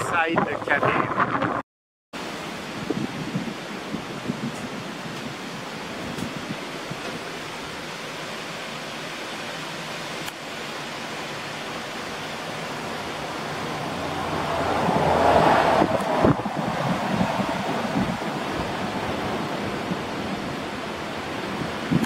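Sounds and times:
wind buffeting microphone: 0.0 - 1.6, 2.2 - 7.3, 12.9 - 22.0.

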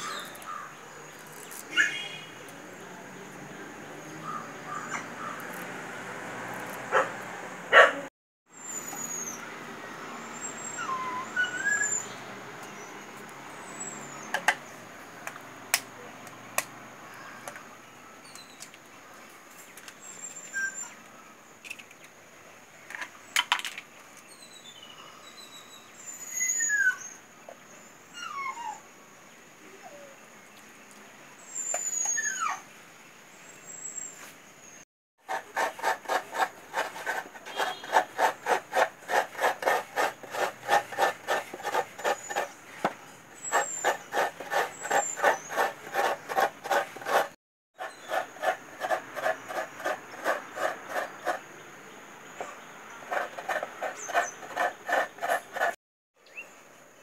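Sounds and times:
coconut scraped on grater: 35.2 - 51.5, 53.1 - 55.8.

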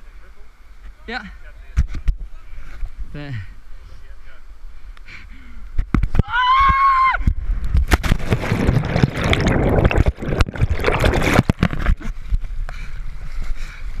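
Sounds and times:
water splashing and churning: 7.7 - 12.4.

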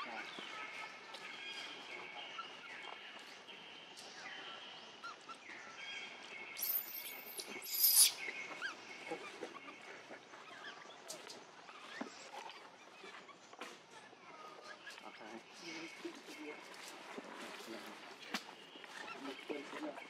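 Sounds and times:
bird chirps: 6.2 - 9.8
high insect-like tones: 6.6 - 8.2.

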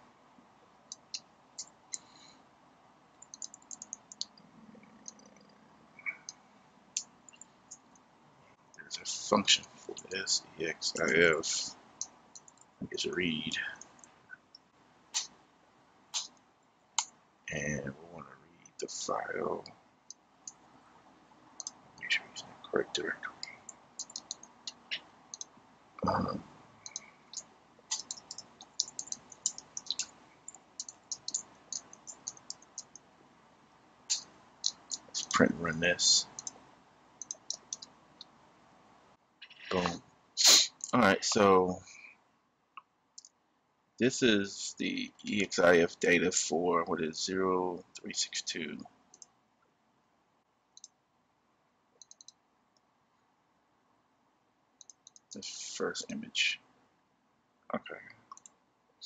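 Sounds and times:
faint computer mouse clicks: 3.2 - 4.4, 23.4 - 25.5, 26.8 - 33.0, 36.2 - 36.6, 37.2 - 38.3, 52.0 - 52.4, 54.8 - 55.4, 58.3 - 58.6
keyboard typing: 3.2 - 7.9, 23.2 - 33.0, 36.2 - 36.6, 37.2 - 37.9, 52.0 - 52.4.

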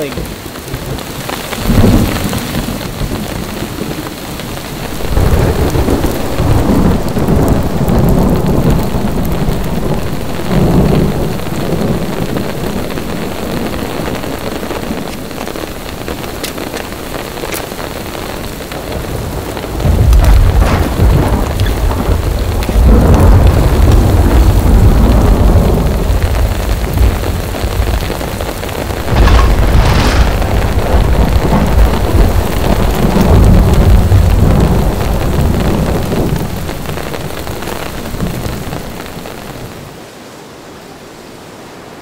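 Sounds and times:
heavy rain: 0.0 - 42.0
rolling thunder: 0.8 - 16.4, 18.5 - 39.2
sharp thunder crack: 1.6 - 3.5, 4.9 - 15.1, 19.7 - 36.9.

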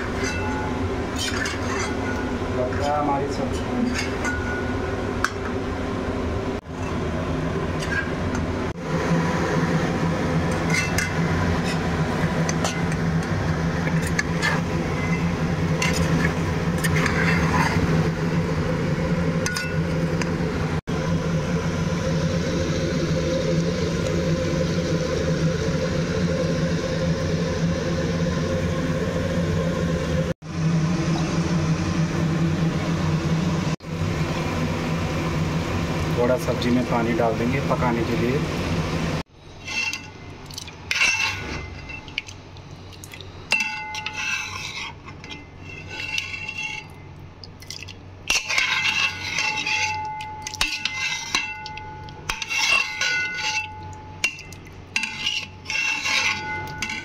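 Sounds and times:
metal spoon stirring and scraping: 0.0 - 4.6, 7.8 - 8.2, 10.5 - 18.1, 39.5 - 42.4, 43.5 - 57.0
low mechanical hum: 0.0 - 57.0
spoon clinking against pot: 48.3 - 57.0.

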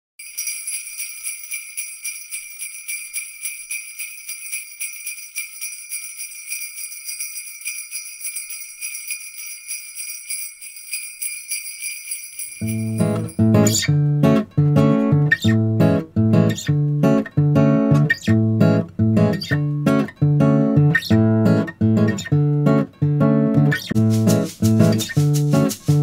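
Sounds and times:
sleigh bells jingling: 0.2 - 14.0, 23.8 - 26.0.

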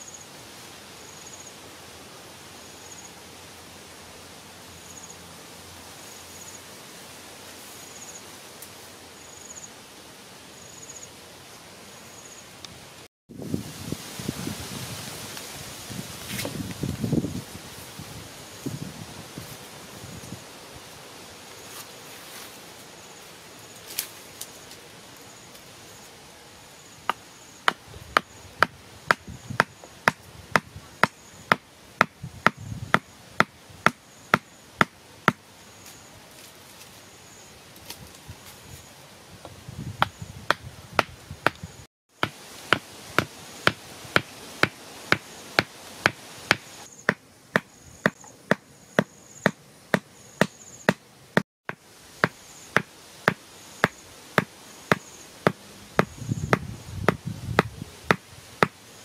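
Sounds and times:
wooden stake being struck: 40.0 - 51.0, 51.7 - 58.8.

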